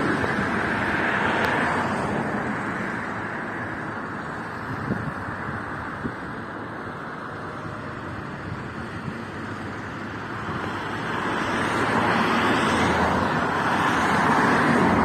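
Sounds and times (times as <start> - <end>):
car approaching: 0.0 - 15.0.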